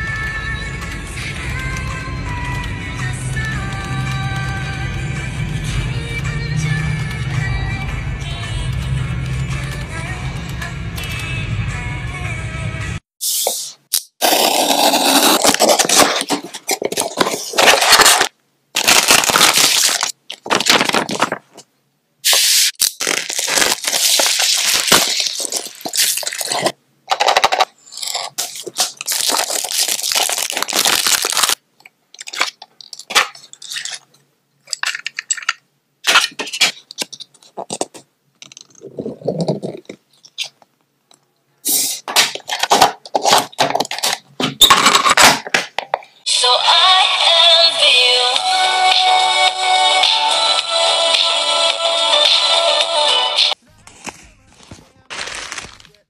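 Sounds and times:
cardboard mailer tearing: 14.2s - 21.5s, 22.3s - 31.6s, 55.1s - 56.0s
paper packaging crinkling: 14.2s - 21.7s, 22.3s - 31.6s, 32.2s - 34.0s, 53.8s - 56.0s
plastic cassette case handled: 15.4s - 21.7s, 23.1s - 31.6s, 32.2s - 34.0s, 42.1s - 46.0s.

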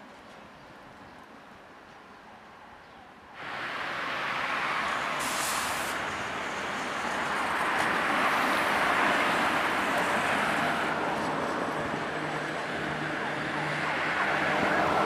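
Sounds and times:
tram rolling along track: 0.0s - 15.0s
short hiss: 5.2s - 6.0s.

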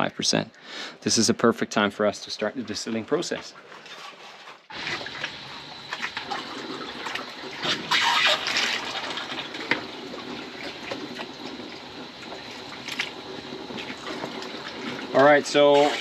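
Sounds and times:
liquid mash sloshing and splashing: 3.5s - 16.0s.

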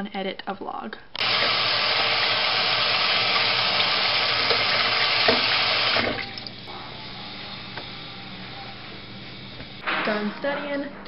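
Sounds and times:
faucet running into steel sink: 1.2s - 6.7s.

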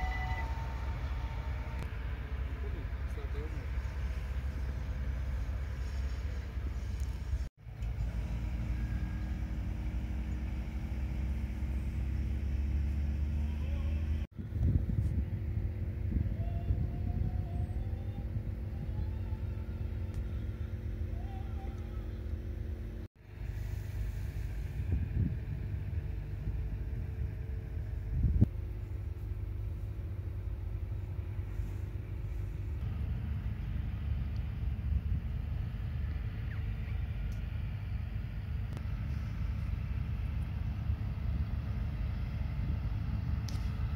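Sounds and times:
steady low rumble: 0.0s - 43.9s
wind buffeting microphone: 14.3s - 20.4s, 24.1s - 28.5s.

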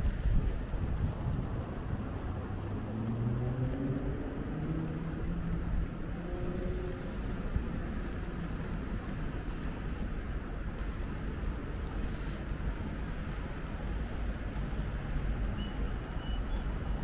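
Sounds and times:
vehicle engine hum: 0.0s - 17.0s
traffic hiss: 4.4s - 17.0s.

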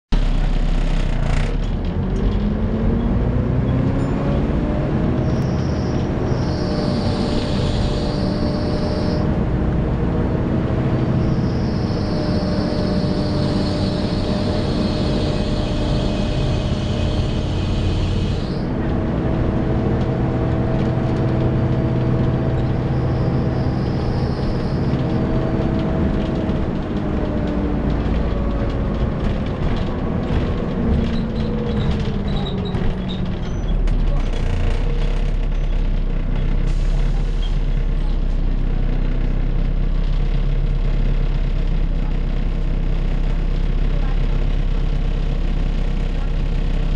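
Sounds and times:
bus engine and road rumble: 0.1s - 46.9s
bus cooling fan whining: 2.0s - 35.6s
high screech: 5.4s - 9.2s.

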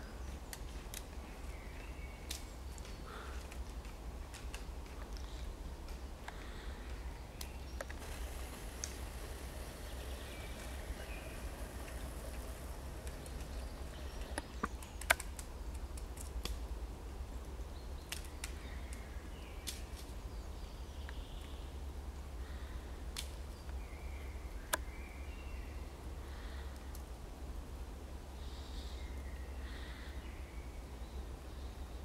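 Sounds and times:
woodpecker pecking: 2.3s - 16.5s
faint songbird calls: 6.3s - 15.3s, 28.4s - 32.0s
steady low rumble: 8.0s - 17.6s.

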